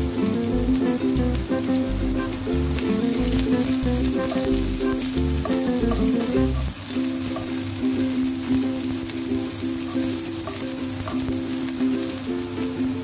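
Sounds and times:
background music with bass: 0.0s - 6.7s
onions sizzling in hot oil: 0.0s - 13.0s.

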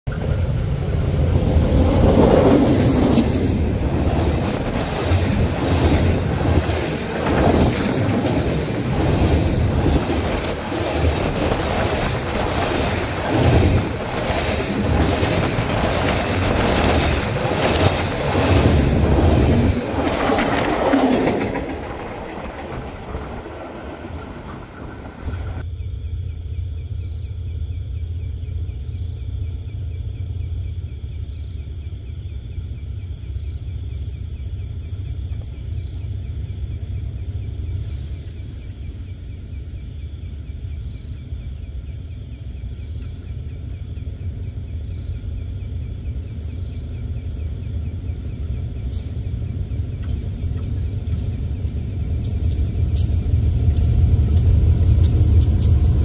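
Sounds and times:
freight train rumbling past: 0.1s - 25.6s, 35.6s - 56.0s
train wheels clickety-clack: 0.1s - 25.6s, 42.6s - 56.0s
insect chirring: 21.7s - 56.0s.

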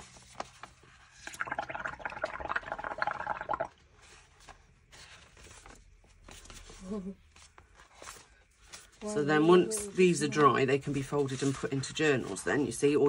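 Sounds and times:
bubbling through a drinking straw: 1.3s - 3.8s.

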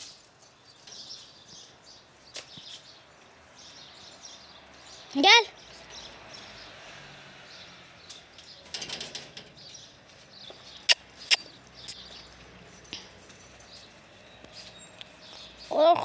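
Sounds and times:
faint outdoor background: 0.0s - 16.0s.

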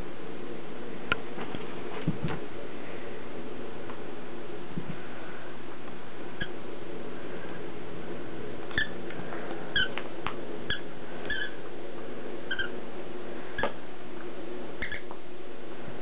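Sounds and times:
squeaky toy squeaking: 10.7s - 11.6s, 12.5s - 12.7s, 14.8s - 15.0s.

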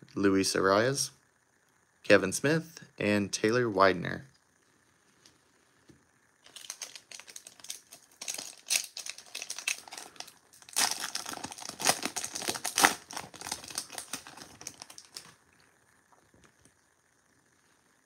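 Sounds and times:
card pack wrapper crinkling: 6.4s - 15.4s.

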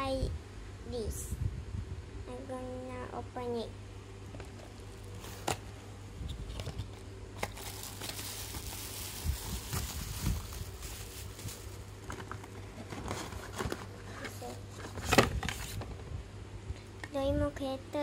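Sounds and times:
wrapping crinkling and rustling: 4.4s - 5.7s, 6.4s - 15.9s.

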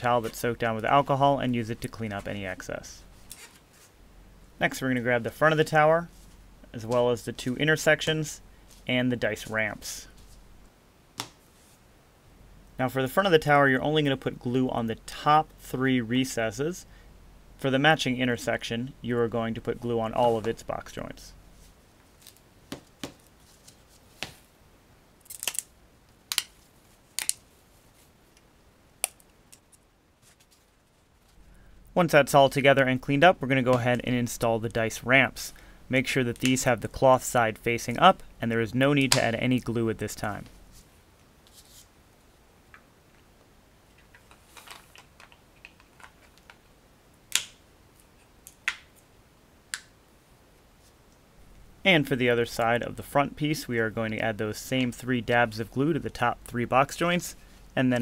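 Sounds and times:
plastic parts clicking together: 44.0s - 46.6s.

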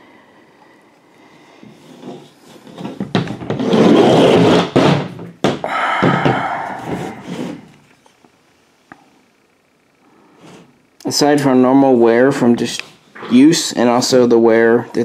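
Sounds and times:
rifle rubbing and scraping: 1.8s - 4.9s, 6.8s - 7.7s.

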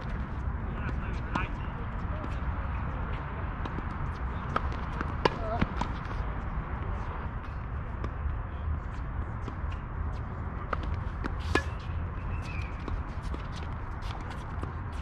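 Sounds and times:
tennis balls struck and bouncing: 3.6s - 8.3s, 8.9s - 15.0s.

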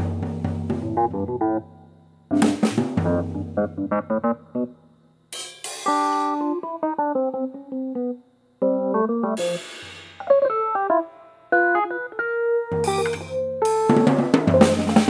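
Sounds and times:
drum kit: 0.0s - 1.6s, 2.3s - 4.7s, 5.3s - 7.0s, 9.4s - 11.0s, 12.6s - 15.0s
electric piano chords and runs: 0.0s - 1.6s, 2.3s - 4.7s, 5.9s - 15.0s
cymbal crashes: 9.4s - 10.3s.

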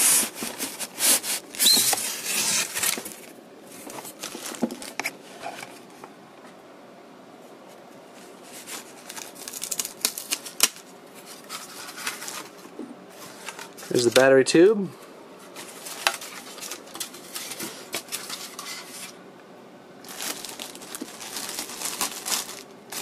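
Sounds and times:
packaging rustling and clicking: 0.1s - 5.8s, 8.6s - 14.3s, 15.6s - 19.2s, 20.0s - 23.0s
plastic wrap crinkling: 0.2s - 5.1s, 8.5s - 12.6s, 20.0s - 23.0s.

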